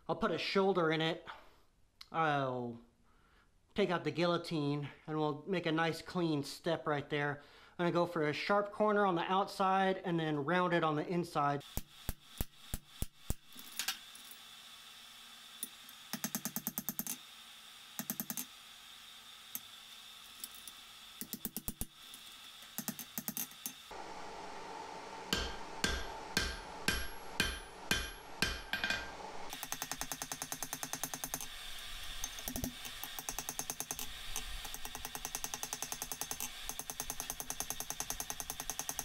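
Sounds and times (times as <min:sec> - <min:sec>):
hammer blows on hot steel: 0:25.2 - 0:31.0
anvil ringing: 0:25.3 - 0:29.1.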